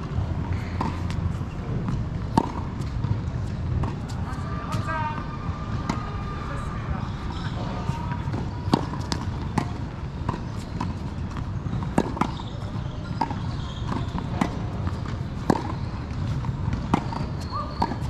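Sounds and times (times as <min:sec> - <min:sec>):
tennis ball hitting racket: 0:00.1 - 0:05.2, 0:07.4 - 0:18.0
ball bouncing on hard court: 0:07.5 - 0:18.0.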